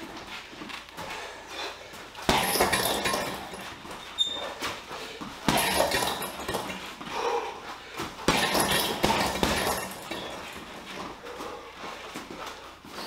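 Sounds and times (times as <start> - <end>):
punches hitting heavy bag: 2.2 - 4.0, 5.4 - 6.9, 8.2 - 11.0.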